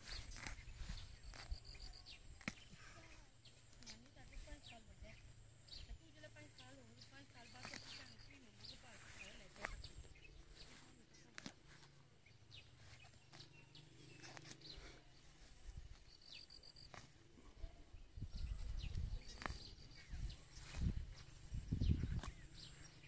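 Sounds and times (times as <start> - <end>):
weeds being pulled rustling: 0.0 - 4.7, 7.2 - 17.6, 18.2 - 23.0
bird chirps: 0.0 - 17.1, 18.2 - 23.0
low microphone rumble: 17.5 - 23.0.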